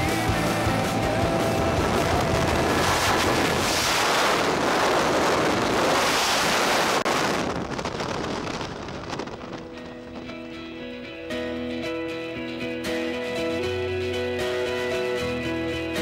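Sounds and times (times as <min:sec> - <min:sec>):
wind roaring over microphone: 0:00.1 - 0:11.3.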